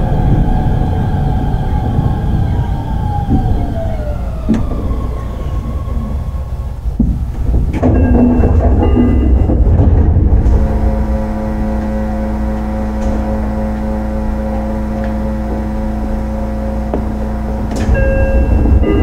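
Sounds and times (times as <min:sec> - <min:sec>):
track rumble: 0:00.0 - 0:19.0
train motor whine: 0:00.0 - 0:19.0
knocks: 0:06.9 - 0:15.7.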